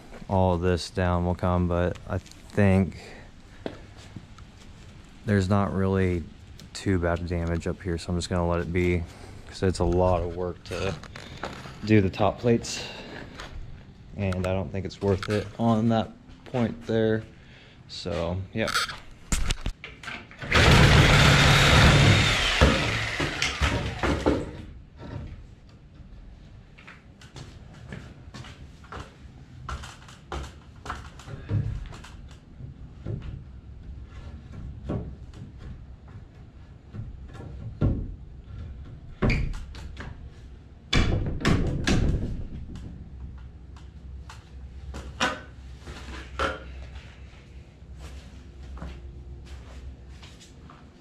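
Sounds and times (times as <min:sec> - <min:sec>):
wooden knocks and bangs: 0:36.9 - 0:40.2, 0:40.9 - 0:43.3.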